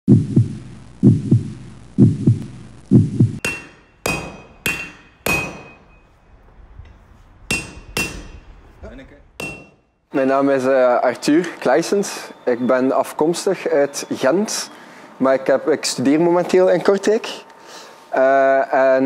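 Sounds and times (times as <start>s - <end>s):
low double thumps: 0.1s - 9.9s
hammer blows on anvil: 3.4s - 6.1s, 6.8s - 8.6s, 9.4s - 9.8s.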